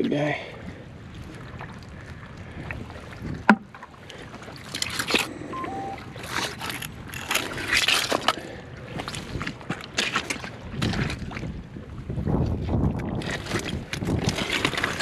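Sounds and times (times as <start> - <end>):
boots squelching through mud: 6.6 - 11.4.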